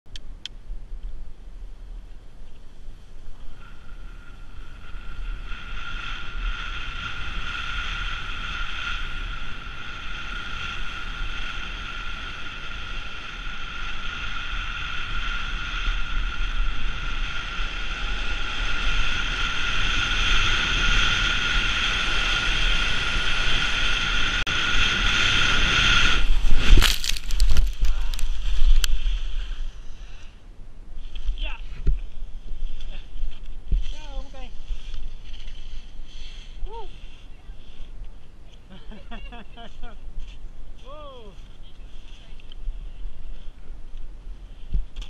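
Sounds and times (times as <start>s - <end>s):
wind rumbling on microphone: 0.1s - 45.0s
skis sliding over hard snow: 3.0s - 30.2s, 32.5s - 37.9s.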